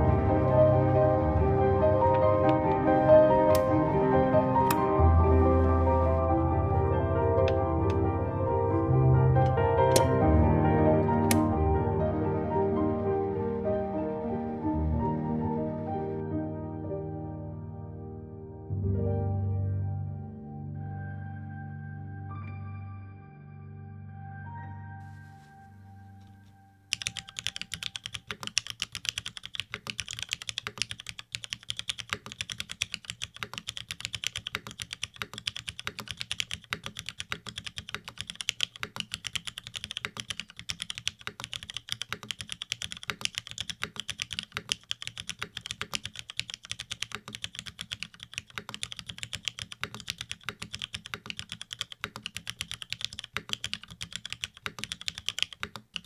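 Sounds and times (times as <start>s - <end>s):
fast typing on mechanical keyboard: 9.9s - 10.2s, 26.9s - 56.0s.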